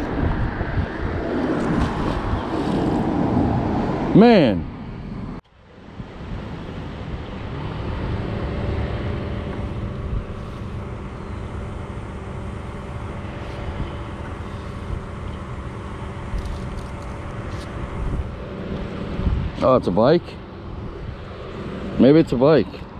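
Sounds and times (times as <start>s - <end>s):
wind on microphone: 0.0s - 4.2s, 16.2s - 19.7s
steady engine drone: 0.0s - 22.9s.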